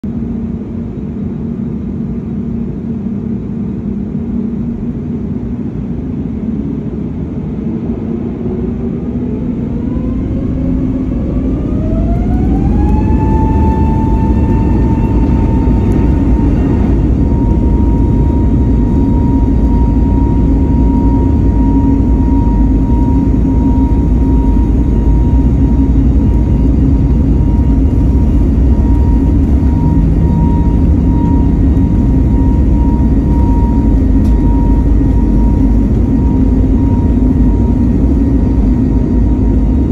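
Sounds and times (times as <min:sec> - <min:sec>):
jet engines spooling up: 0:00.2 - 0:39.9.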